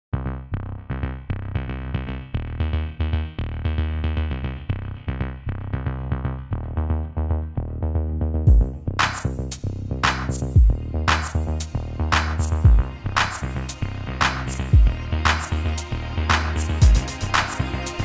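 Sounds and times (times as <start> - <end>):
background music with steady beat: 6.6 - 18.0.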